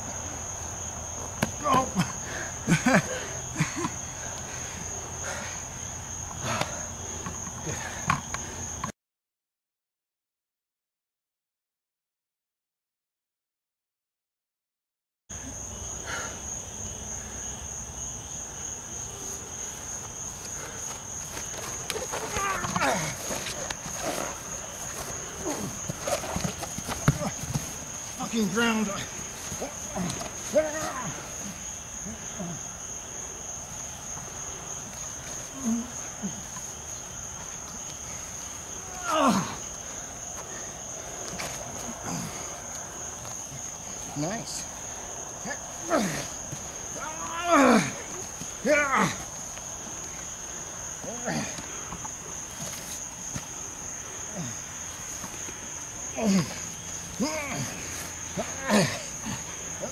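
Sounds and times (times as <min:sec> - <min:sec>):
crickets trilling: 0:00.0 - 0:08.9, 0:15.3 - 0:59.9
men grunting: 0:01.3 - 0:05.6, 0:06.4 - 0:08.8, 0:20.4 - 0:33.0, 0:34.8 - 0:59.9
man's strained cry: 0:21.9 - 0:24.4, 0:28.2 - 0:32.7, 0:38.8 - 0:39.8, 0:45.4 - 0:49.3, 0:51.0 - 0:51.7, 0:56.0 - 0:59.9.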